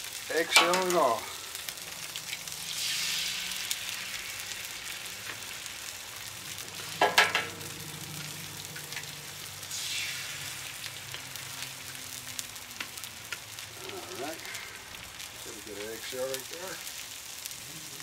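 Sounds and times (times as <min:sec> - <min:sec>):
eggs sizzling on griddle: 0:00.0 - 0:18.0.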